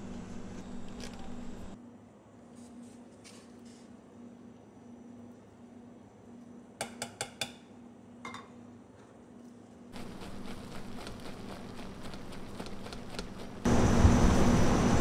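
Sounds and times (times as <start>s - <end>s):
spatula stirring and scraping sugar: 10.0s - 13.6s.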